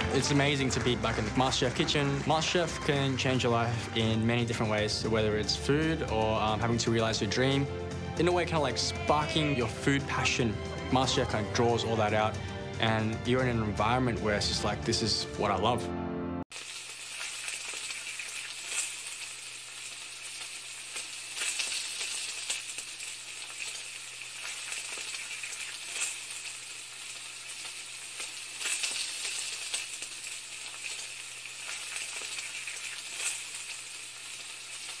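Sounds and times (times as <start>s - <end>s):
food sizzling in a pan: 16.5s - 35.0s.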